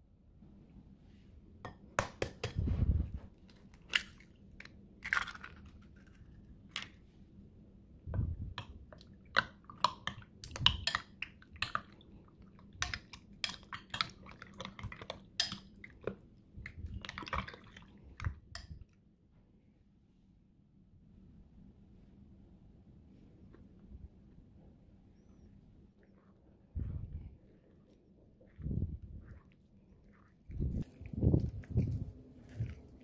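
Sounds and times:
wet squishing of chicken: 11.3s - 18.4s.

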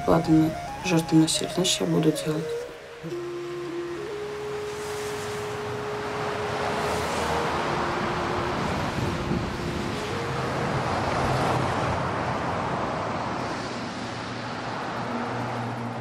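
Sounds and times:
faint held music notes: 0.0s - 11.9s
highway traffic rushing: 0.0s - 16.0s.

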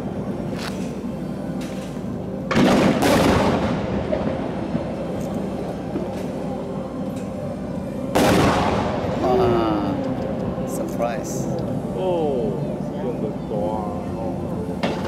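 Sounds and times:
fireworks booming: 2.5s - 4.9s, 8.2s - 9.2s.

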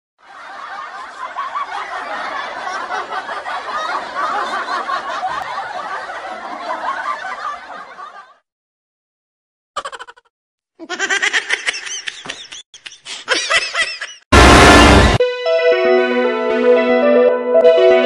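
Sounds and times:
people laughing: 0.2s - 8.4s, 10.8s - 14.3s.

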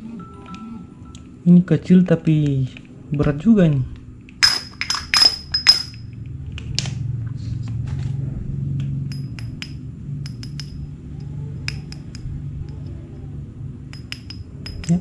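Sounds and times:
metal spool clinks and taps: 4.4s - 6.0s, 9.1s - 10.8s, 13.9s - 15.0s.

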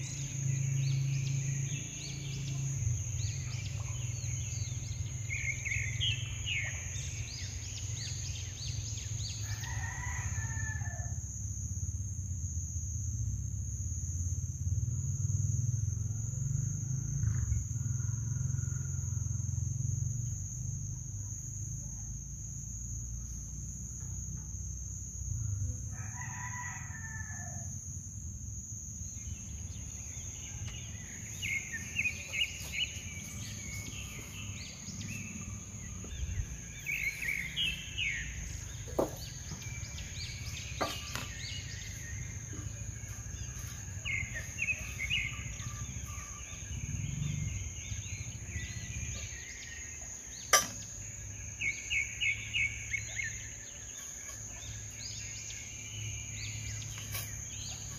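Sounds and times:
high insect drone: 0.0s - 57.9s
rooster crowing: 9.3s - 11.2s, 25.9s - 27.8s.

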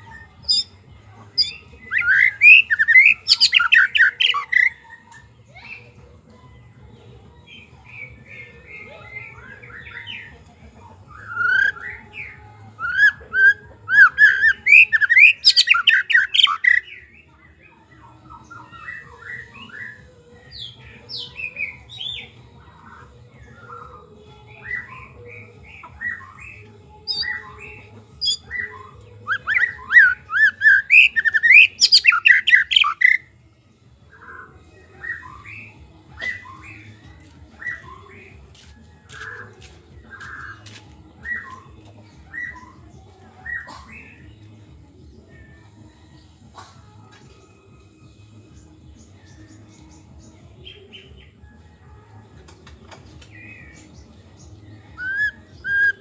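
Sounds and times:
bird singing whistled notes: 0.0s - 0.8s, 1.4s - 5.9s, 11.1s - 17.1s, 18.3s - 33.3s, 34.1s - 38.4s, 39.1s - 44.5s, 53.2s - 56.0s.

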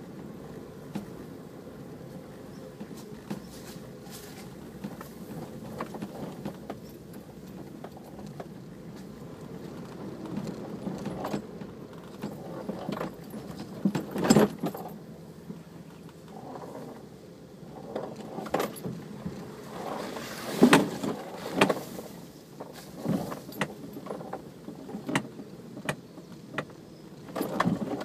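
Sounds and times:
low engine sound: 0.0s - 28.0s
rattles and knocks: 2.8s - 17.1s, 17.7s - 28.0s.

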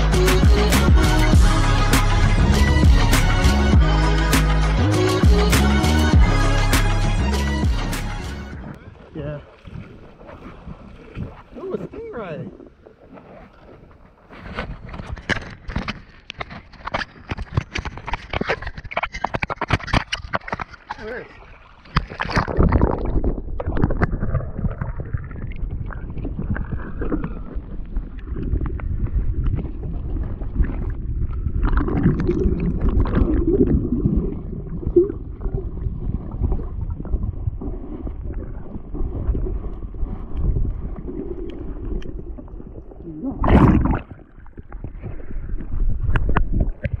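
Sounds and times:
underwater rumble and gurgle: 8.5s - 47.0s.

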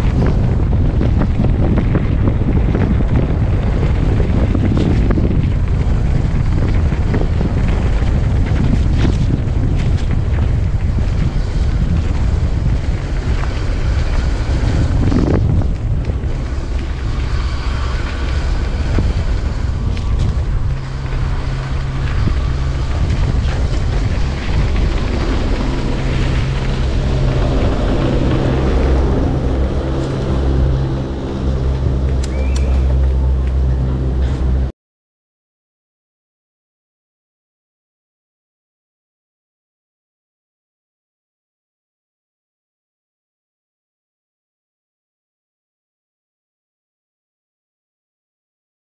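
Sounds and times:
bike tyres rumbling on dirt: 0.0s - 34.7s
steady low hum: 0.0s - 34.7s
wind buffeting microphone: 0.0s - 34.7s.

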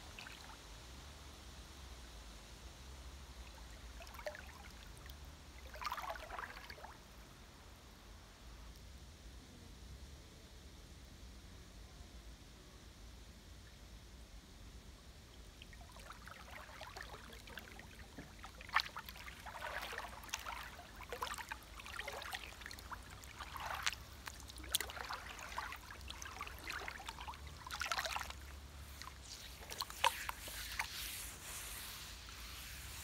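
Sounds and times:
creek water splashing: 0.1s - 0.6s, 3.4s - 7.0s, 15.5s - 33.0s.

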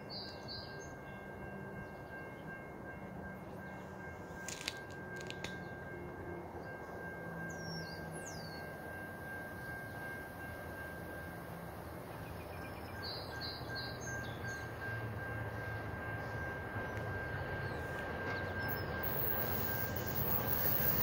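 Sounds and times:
distant train rumble: 0.0s - 21.0s.

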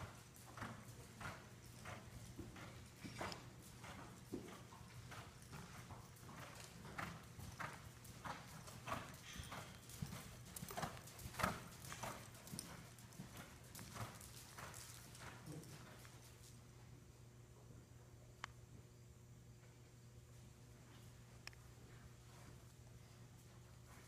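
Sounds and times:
horse hoofbeats on sand: 0.0s - 16.6s.

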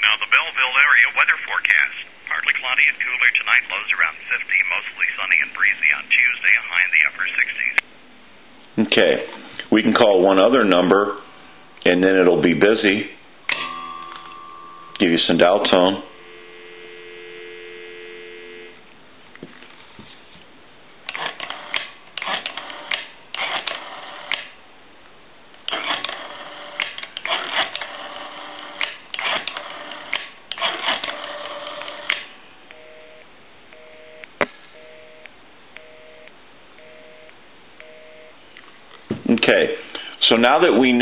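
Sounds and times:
telephone dial tone: 13.5s - 15.0s, 16.1s - 18.8s, 32.7s - 38.4s
telephone busy signal: 16.1s - 18.8s, 32.7s - 38.4s.

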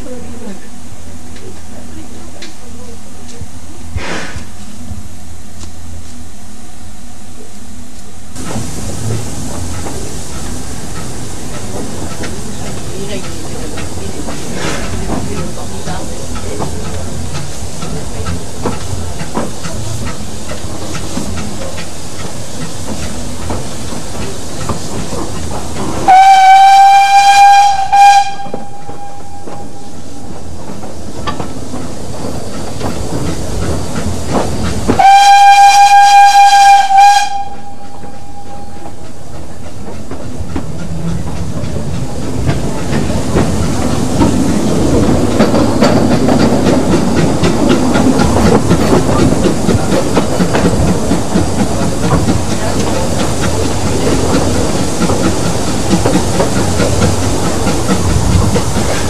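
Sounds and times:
steam hiss: 3.8s - 5.1s, 8.3s - 59.0s
train rail clatter: 7.5s - 59.0s
steam locomotive whistle blasts: 26.0s - 30.0s, 35.0s - 39.0s.

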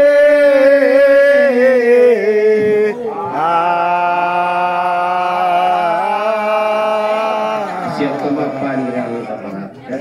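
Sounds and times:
man chanting into microphone: 0.0s - 9.6s.

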